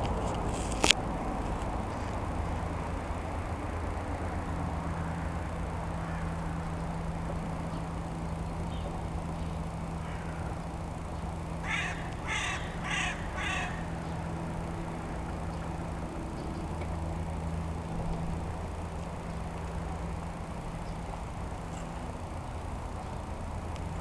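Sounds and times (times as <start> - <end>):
steady low hum: 0.0 - 24.0
crow cawing: 6.0 - 6.6, 10.0 - 10.5, 11.6 - 14.2.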